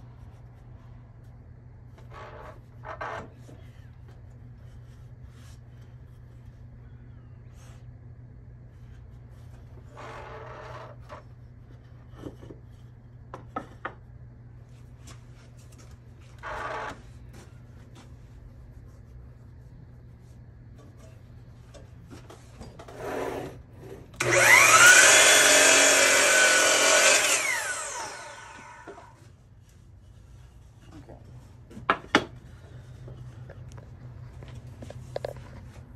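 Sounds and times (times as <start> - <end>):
miter saw cutting board: 24.2 - 29.2.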